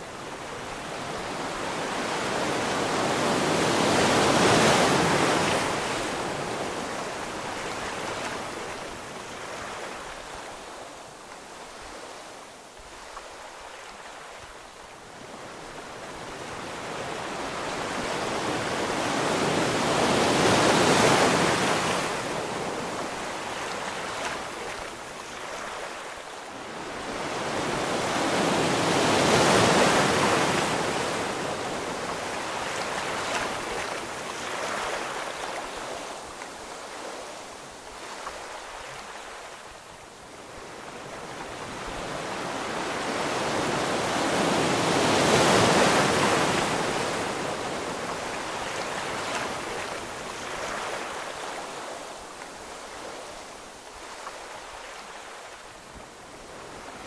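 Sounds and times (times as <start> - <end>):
ocean waves surging: 16.4 - 39.6, 41.2 - 55.6.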